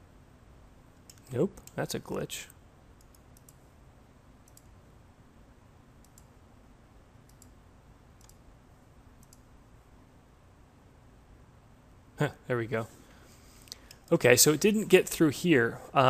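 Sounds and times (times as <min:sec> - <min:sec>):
computer mouse clicking: 0:02.5 - 0:03.7, 0:04.4 - 0:04.8, 0:06.0 - 0:06.4, 0:07.2 - 0:07.6, 0:08.2 - 0:08.4, 0:09.2 - 0:09.5.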